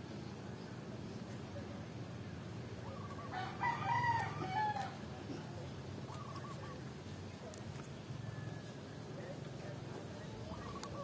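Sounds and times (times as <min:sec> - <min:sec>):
low background hum: 0:00.0 - 0:11.0
rooster crowing: 0:03.2 - 0:05.0.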